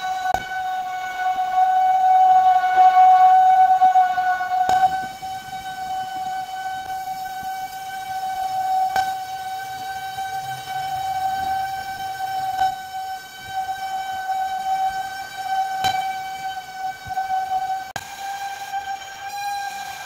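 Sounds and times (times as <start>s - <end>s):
lathe steady high whine: 0.0s - 20.0s.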